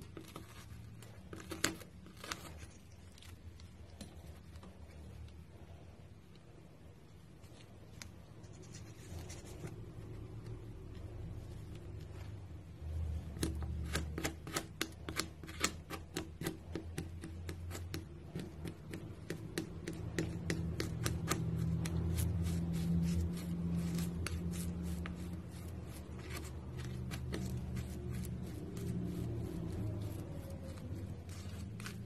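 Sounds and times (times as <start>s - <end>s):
palette knife scraping thick paint: 0.0s - 4.6s, 13.3s - 32.0s.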